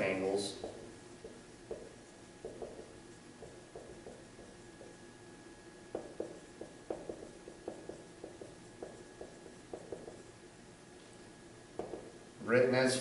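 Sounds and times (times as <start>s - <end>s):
marker writing on whiteboard: 0.0s - 5.1s, 5.9s - 10.4s, 11.7s - 12.2s.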